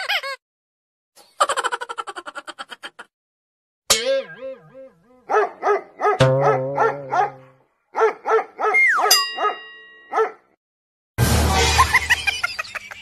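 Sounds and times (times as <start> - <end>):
dog barking: 5.2 - 10.5
falling whistle sound effect: 8.8 - 9.1.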